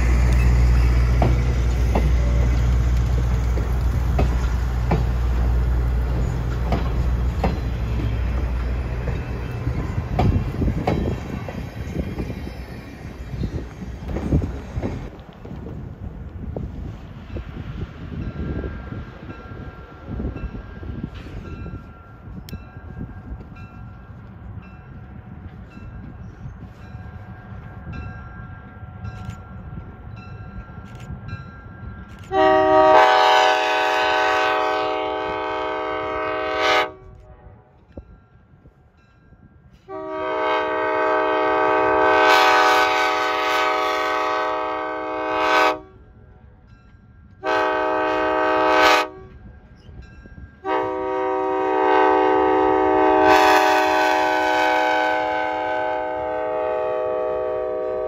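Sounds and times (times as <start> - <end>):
low train rumble: 0.0 - 58.0
locomotive air horn blowing: 32.3 - 37.5, 39.9 - 46.0, 47.4 - 49.3, 50.6 - 58.0.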